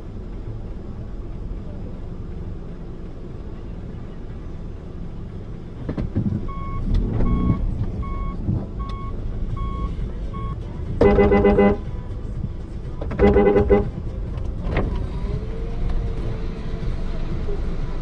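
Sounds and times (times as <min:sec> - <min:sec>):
car engine and road rumble: 0:00.0 - 0:18.0
short electronic beeps: 0:06.5 - 0:11.8
car horn: 0:11.0 - 0:11.9, 0:13.1 - 0:14.0.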